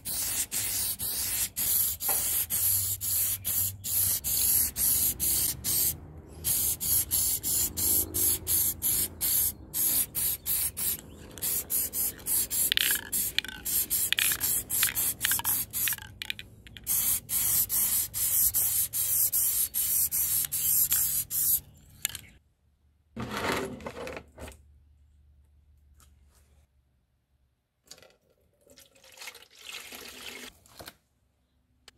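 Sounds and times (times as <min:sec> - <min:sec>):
spray paint can hissing: 0:00.0 - 0:21.6.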